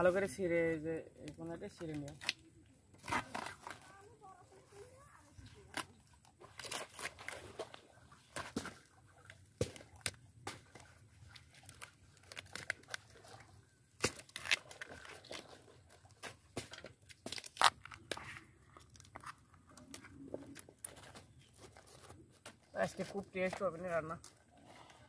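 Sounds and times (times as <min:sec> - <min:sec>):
banana flower snapping and tearing: 0:01.8 - 0:02.4, 0:05.6 - 0:07.4, 0:09.6 - 0:13.2, 0:14.0 - 0:15.4, 0:16.1 - 0:21.0.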